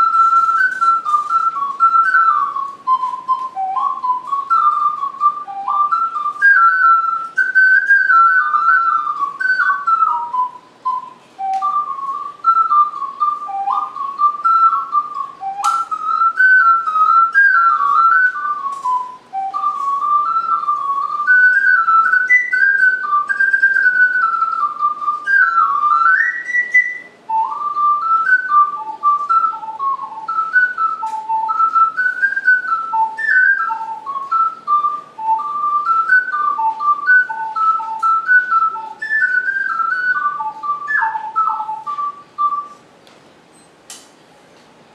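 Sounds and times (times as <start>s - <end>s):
ocarina melody: 0.0s - 43.0s
sharp click: 43.0s - 44.2s.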